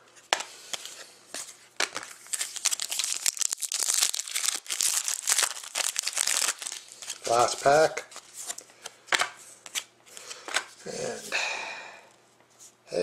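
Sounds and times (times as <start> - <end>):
foil wrapper crinkling and tearing: 1.8 - 8.2.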